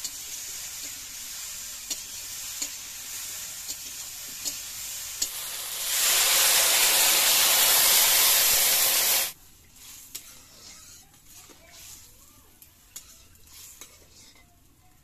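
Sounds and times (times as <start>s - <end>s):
water poured into hot oil: 0.0s - 9.4s
okra frying in a wok: 0.0s - 15.0s
loud steam hiss: 4.7s - 9.4s.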